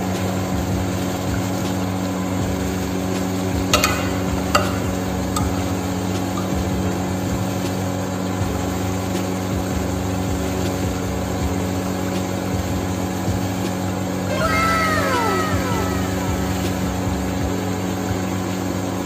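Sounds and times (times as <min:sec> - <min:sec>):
motor humming: 0:13.8 - 0:18.5.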